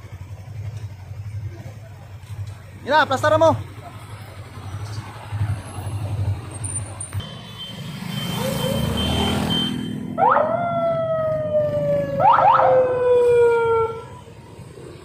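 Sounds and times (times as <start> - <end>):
police siren whoops: 8.1 - 14.7.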